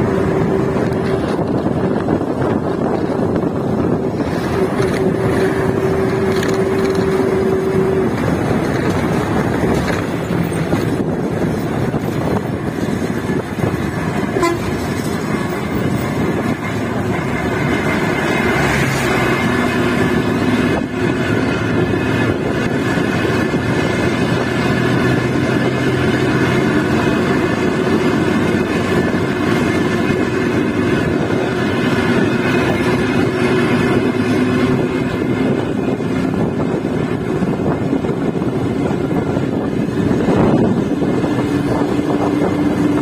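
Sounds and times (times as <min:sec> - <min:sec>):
moving bus: 0:00.0 - 0:43.0
vehicle horn held tone: 0:14.3 - 0:15.0.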